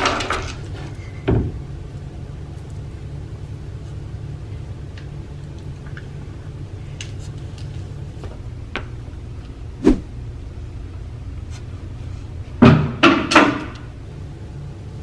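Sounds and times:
steady low hum: 0:00.0 - 0:15.0
knocks and bangs on wooden partition: 0:01.3 - 0:01.6, 0:12.6 - 0:13.7.

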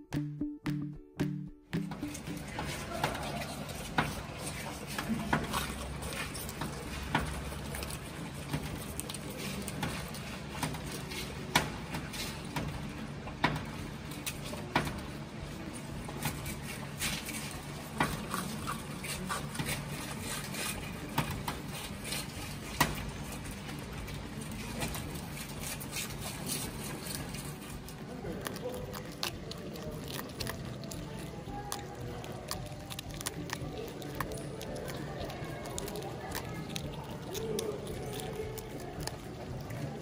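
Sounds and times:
capybara chewing cabbage: 0:01.8 - 0:40.0.

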